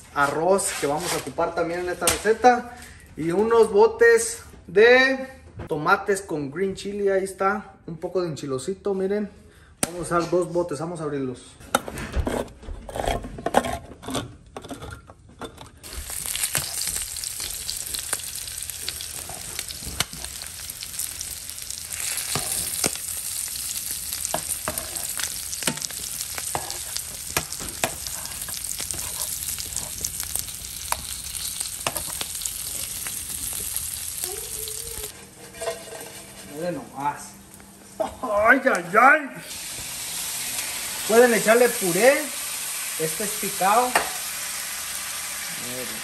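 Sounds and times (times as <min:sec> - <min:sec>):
meat sizzling in a pan: 0:15.8 - 0:35.2, 0:39.5 - 0:46.0.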